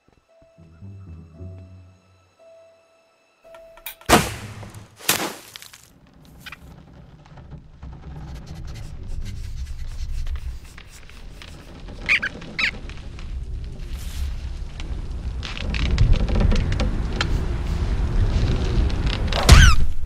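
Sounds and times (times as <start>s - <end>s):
short high squeaks: 8.6s - 12.9s.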